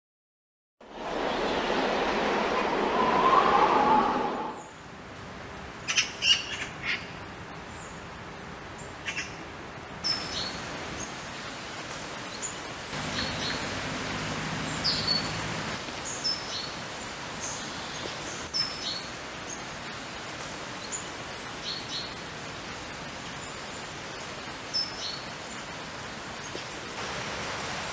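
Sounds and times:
background hiss: 0.8 - 27.9
songbirds chirping: 5.9 - 27.0.

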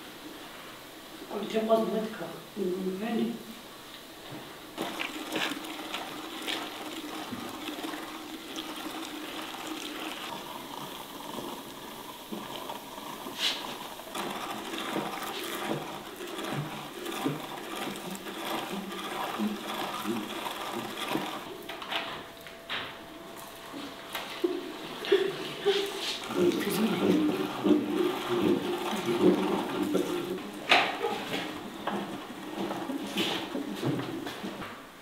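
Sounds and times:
hand-cranked meat grinder grinding: 4.4 - 22.0, 23.4 - 34.4
grinder clicks and creaks: 4.8 - 22.5.

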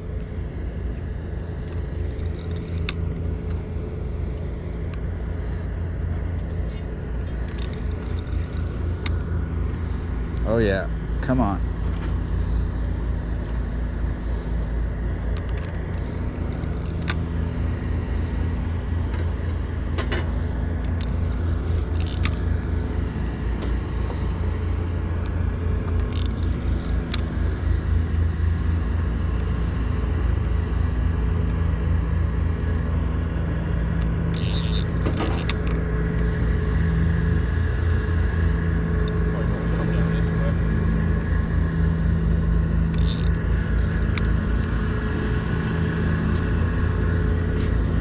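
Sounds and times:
low engine drone: 0.0 - 48.0.

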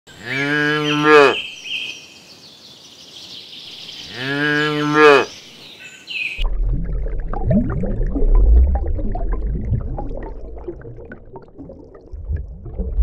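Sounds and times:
cattle mooing: 0.2 - 1.4, 4.1 - 5.3.

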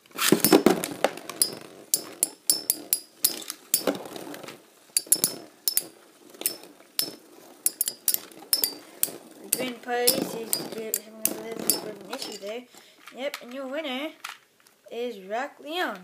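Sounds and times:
spinning tops clicking and knocking: 0.3 - 4.2, 4.8 - 13.6.

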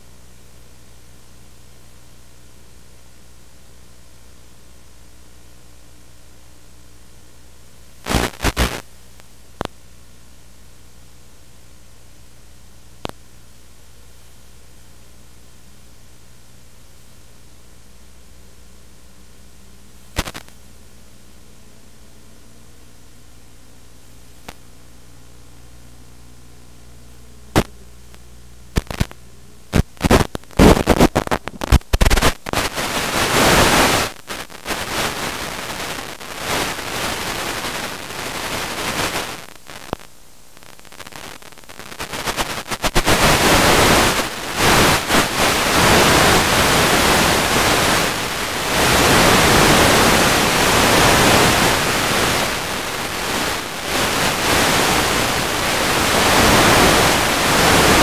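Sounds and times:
steady static hiss: 0.0 - 58.0
radio static crackles: 7.9 - 9.8, 13.0 - 13.2, 20.0 - 20.8, 23.8 - 58.0.

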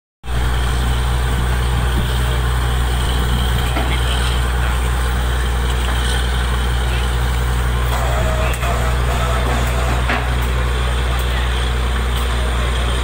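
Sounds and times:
diesel engine droning: 0.2 - 13.0.

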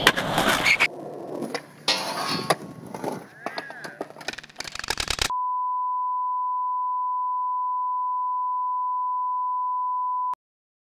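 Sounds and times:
steady test tone beep: 5.3 - 10.4.

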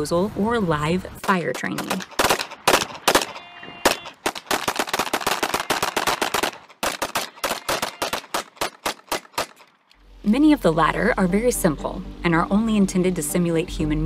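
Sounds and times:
handgun shots: 1.8 - 9.7.

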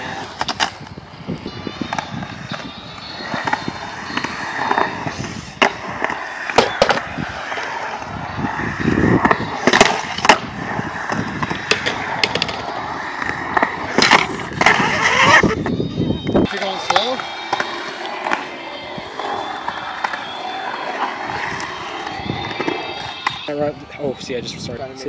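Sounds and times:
skateboard clacking on concrete: 0.0 - 23.6
skateboard wheels rolling on concrete: 0.0 - 25.0.

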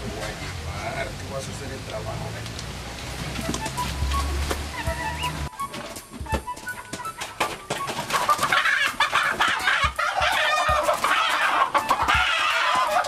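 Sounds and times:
rooster squawking and clucking: 7.2 - 13.0.

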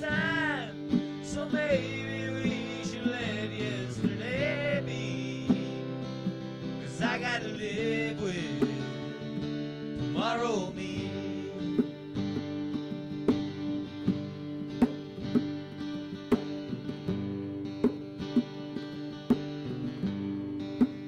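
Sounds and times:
acoustic guitar playing: 0.0 - 21.0
hand drum beat: 0.0 - 21.0.

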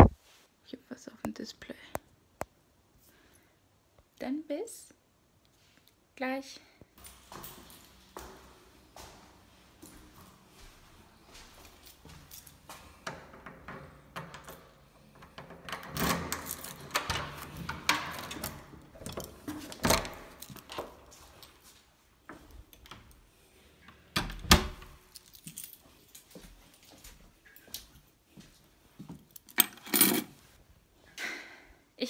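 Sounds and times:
keys jangling: 7.0 - 8.4, 11.3 - 13.0, 15.7 - 20.8, 24.9 - 27.0, 29.3 - 30.3
door clicks and knocks: 13.0 - 20.8, 24.1 - 25.0.

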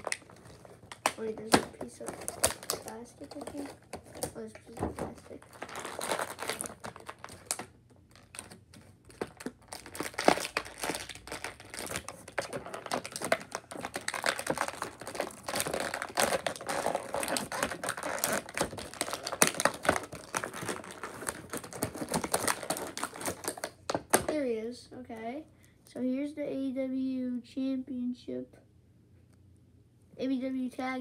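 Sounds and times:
plastic packaging crinkling: 0.0 - 24.3.

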